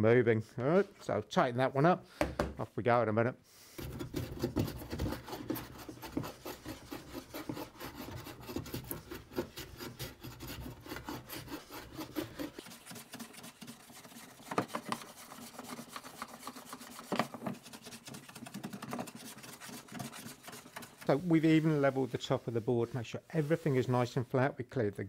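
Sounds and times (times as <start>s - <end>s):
hand plane shaving wood: 3.8s - 22.8s.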